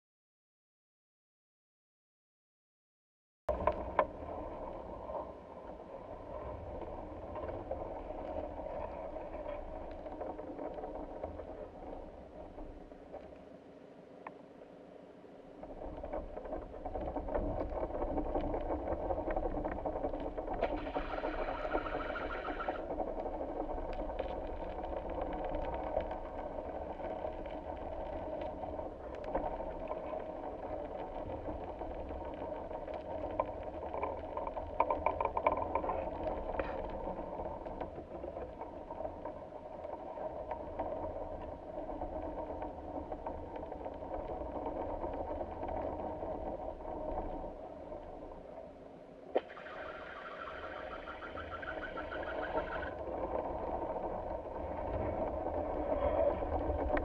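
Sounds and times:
faint ticks: 14.2s - 14.4s, 15.7s - 48.2s, 50.9s - 57.0s.

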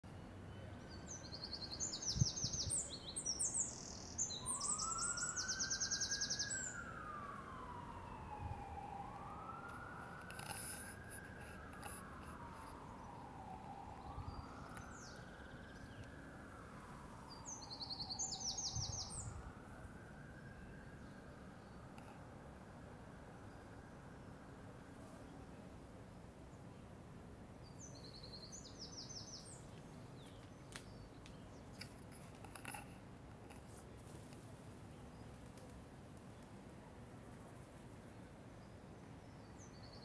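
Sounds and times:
songbird trilling: 1.6s - 6.8s
siren wailing: 3.6s - 22.4s.

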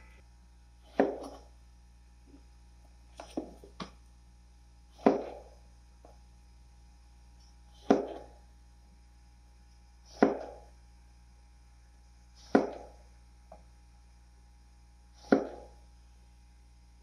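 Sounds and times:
knife chopping on cutting board: 0.9s - 1.4s, 5.0s - 5.6s, 7.8s - 8.4s, 10.1s - 10.7s, 12.4s - 13.0s, 15.2s - 15.8s.

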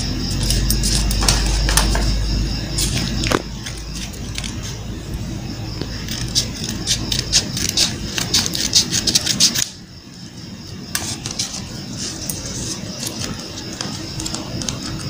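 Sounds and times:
paper rustling and creasing: 2.7s - 9.8s, 10.9s - 15.0s
scissors snipping paper: 6.0s - 9.8s.

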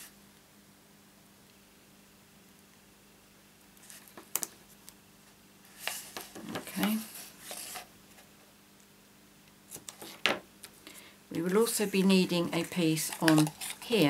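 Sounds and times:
paper rustling and sliding: 5.6s - 8.3s.

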